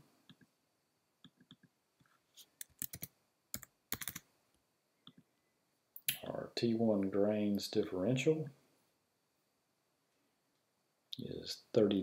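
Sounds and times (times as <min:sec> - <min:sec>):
computer keyboard typing: 0:02.6 - 0:04.2.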